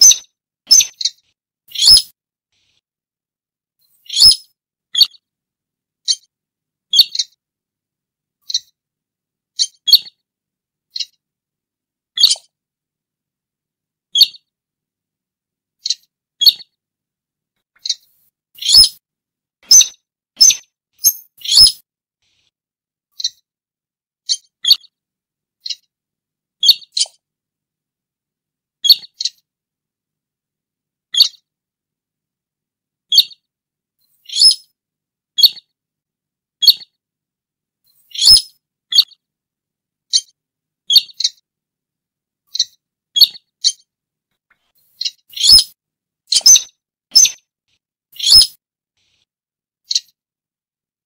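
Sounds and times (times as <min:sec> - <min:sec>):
short sharp high bird calls: 0:00.0 - 0:02.1, 0:04.1 - 0:05.2, 0:18.6 - 0:19.0, 0:19.6 - 0:21.8, 0:34.3 - 0:34.7, 0:38.1 - 0:39.1, 0:45.0 - 0:47.4, 0:48.2 - 0:48.6.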